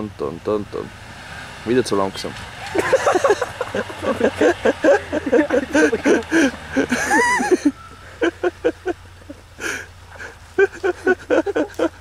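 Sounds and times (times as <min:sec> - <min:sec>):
suv engine humming: 0:00.0 - 0:12.0.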